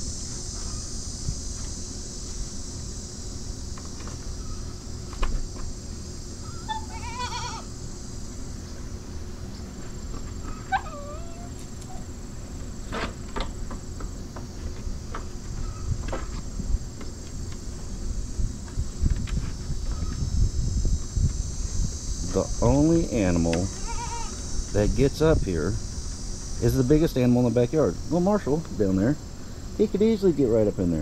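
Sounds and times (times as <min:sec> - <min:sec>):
insects humming: 0:00.0 - 0:31.0
goat bleating: 0:06.7 - 0:07.7, 0:23.7 - 0:24.4.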